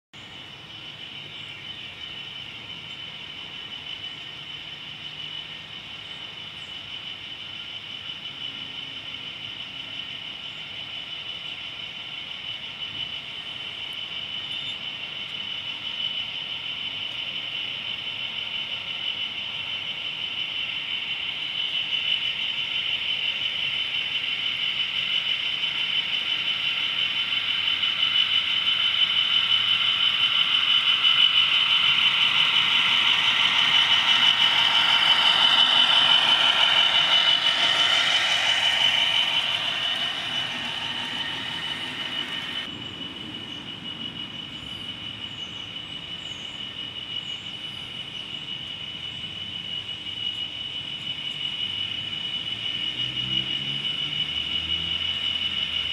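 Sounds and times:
model locomotive motor whining: 13.8 - 42.7.

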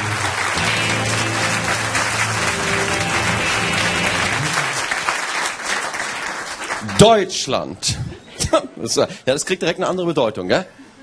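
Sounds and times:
background music: 0.0 - 5.0
studio audience applauding: 0.0 - 7.3.

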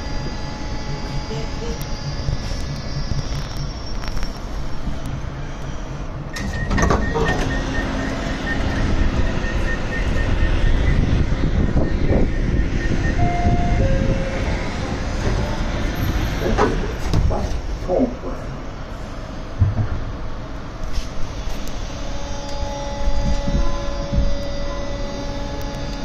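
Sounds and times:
high beeping tone: 0.0 - 5.6, 6.2 - 15.1
subway train rumbling past: 0.0 - 26.0.

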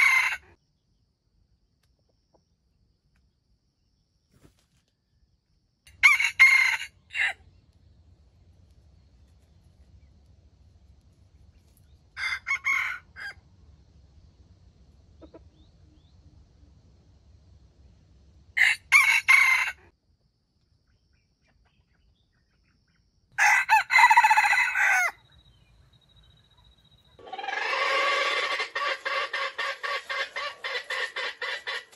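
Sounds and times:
rooster crowing: 0.0 - 0.6, 5.9 - 7.4, 12.1 - 13.4, 18.6 - 19.9, 23.4 - 25.4, 27.2 - 31.9.

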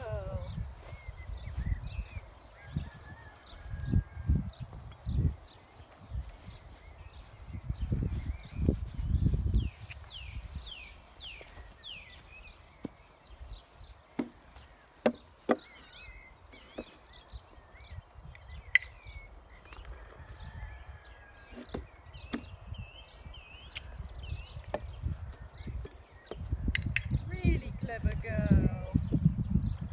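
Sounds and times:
birds chirping: 0.0 - 29.9
hooves knocking on wood: 14.1 - 15.9.

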